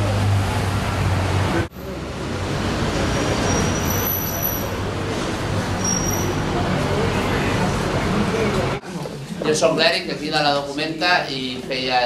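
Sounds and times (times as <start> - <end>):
street traffic engine hum: 0.0 - 9.4.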